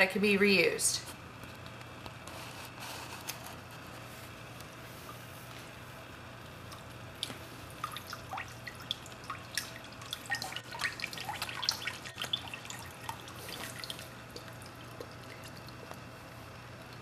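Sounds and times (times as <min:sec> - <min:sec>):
water dripping into a tub: 0:06.7 - 0:17.0.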